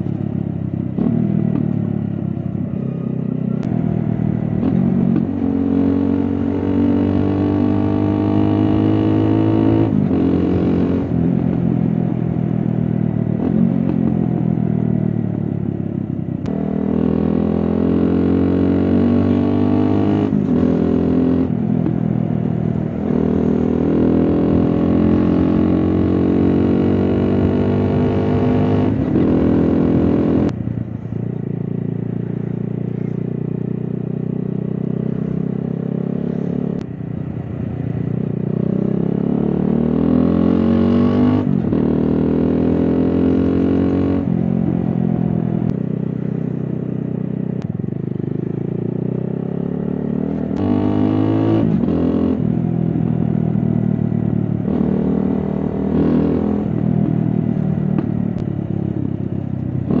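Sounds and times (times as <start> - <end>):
motorcycle engine accelerating: 0.0 - 60.0.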